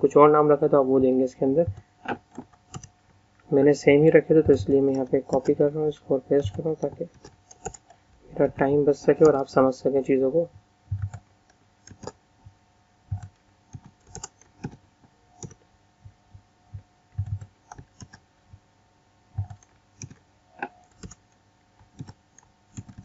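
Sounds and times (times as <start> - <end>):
computer keyboard keystrokes: 1.7 - 2.9, 4.5 - 5.6, 6.4 - 7.9, 10.9 - 11.2, 11.8 - 12.2, 13.1 - 14.8, 15.4 - 15.6, 17.2 - 18.2, 19.4 - 23.0.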